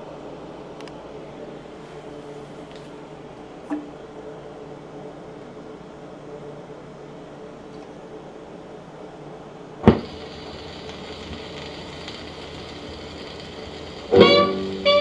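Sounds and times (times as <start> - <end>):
record surface hiss: 0.0 - 15.0
low amplifier hum: 9.8 - 15.0
jazz band music with reed instrument: 14.1 - 15.0.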